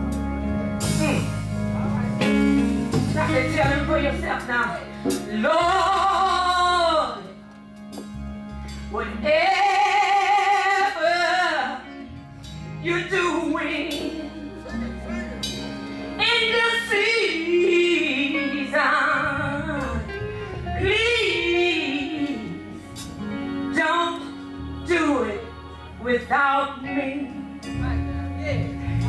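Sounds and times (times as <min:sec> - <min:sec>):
gospel choir singing: 0:12.9 - 0:29.0.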